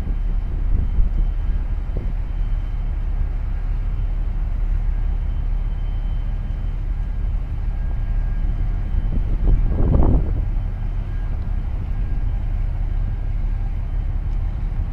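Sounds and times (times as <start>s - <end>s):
faint steady whine: 0.0s - 14.9s
large ship low rumble: 0.0s - 14.9s.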